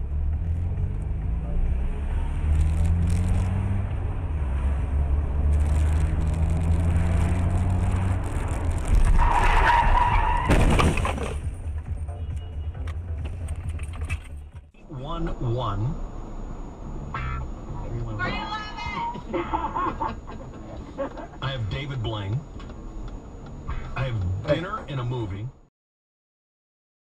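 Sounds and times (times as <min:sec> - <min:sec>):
car engine revving: 0:00.0 - 0:10.4
tyres squealing: 0:08.9 - 0:11.2.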